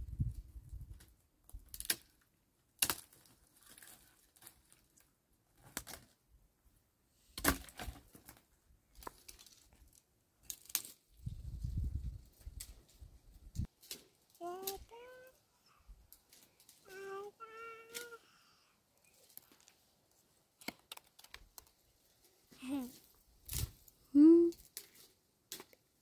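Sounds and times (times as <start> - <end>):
dry wood cracking and snapping: 1.5 - 6.2, 7.4 - 11.0, 20.6 - 21.7.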